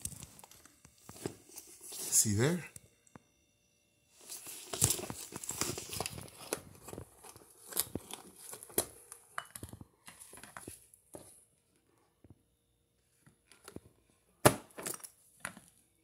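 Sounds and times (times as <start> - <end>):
hands rustling cardboard box: 4.2 - 8.9.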